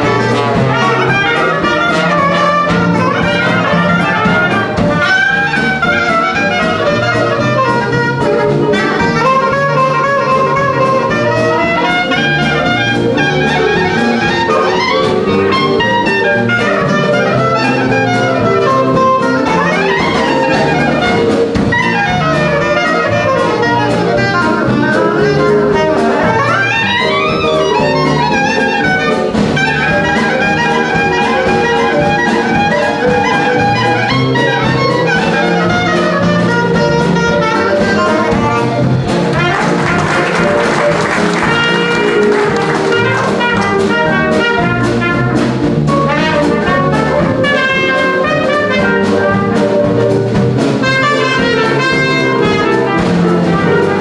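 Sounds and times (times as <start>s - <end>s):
jazz band playing: 0.0s - 54.0s
reed instrument solo: 0.0s - 54.0s.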